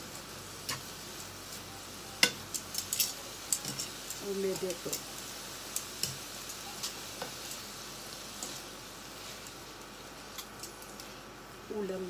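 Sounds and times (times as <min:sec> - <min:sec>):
food sizzling in a frying pan: 0:00.0 - 0:12.0
utensils clicking against pan: 0:02.2 - 0:05.0.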